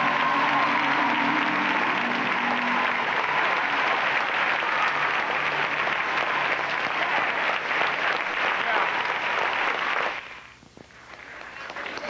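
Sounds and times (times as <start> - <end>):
choral music: 0.0 - 4.4
audience applauding: 0.0 - 12.0.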